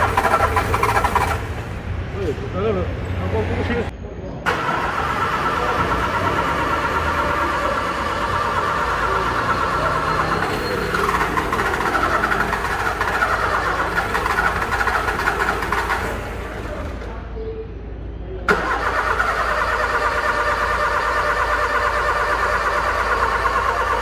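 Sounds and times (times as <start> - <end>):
car starter rapid clicking: 0.0 - 1.6, 4.5 - 17.0, 18.5 - 24.0.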